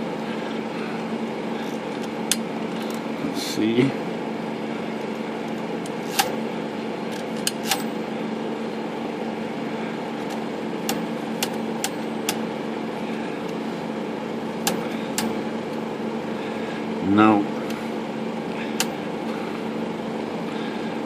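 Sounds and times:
steady hum: 0.0 - 21.0
typewriter metallic clicks: 7.2 - 7.9.

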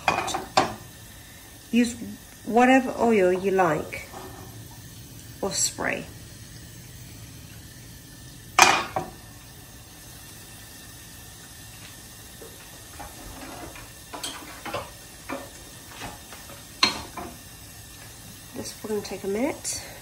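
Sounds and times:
frying pan clanking on grate: 0.0 - 0.8, 8.6 - 9.2, 13.0 - 17.4
kitchenware knocks and clatters: 0.0 - 0.8, 16.8 - 17.4.

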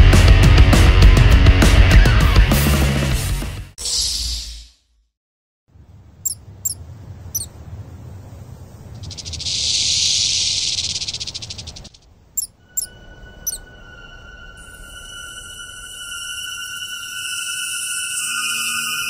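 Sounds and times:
short high chirps: 6.2 - 6.8, 12.4 - 13.7
rattlesnake rattle buzzing: 9.0 - 12.0.

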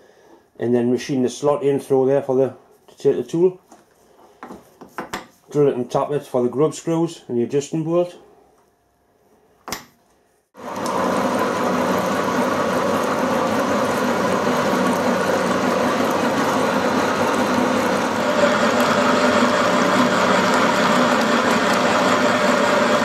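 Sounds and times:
milling machine cutting steel: 10.8 - 23.0.

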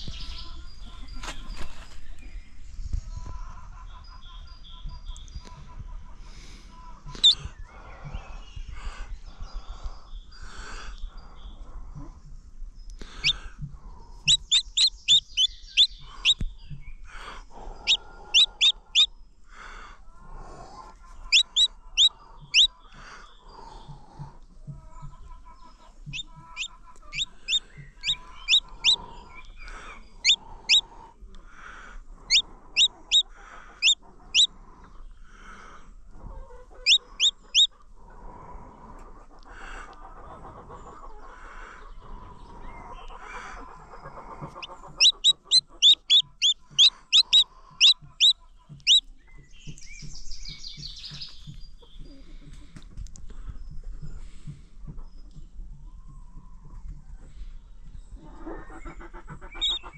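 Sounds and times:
chick peeping: 0.0 - 2.2, 2.9 - 9.0, 12.9 - 19.1, 20.1 - 31.4, 32.2 - 38.1, 38.8 - 52.8, 53.4 - 59.9
soft low clucking: 23.7 - 30.8, 42.3 - 50.2.

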